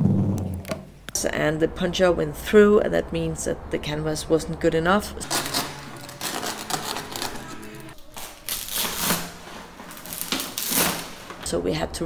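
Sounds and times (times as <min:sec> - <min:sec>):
fabric tearing: 0:05.2 - 0:11.4.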